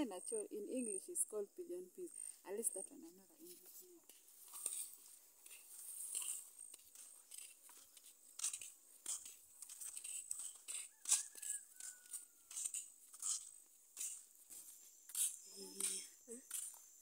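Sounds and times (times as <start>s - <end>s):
footsteps crunching on dry grass: 3.4s - 16.8s.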